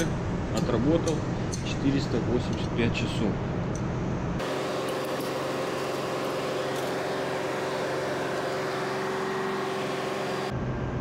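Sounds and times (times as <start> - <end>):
engine room machinery drone: 0.0 - 11.0.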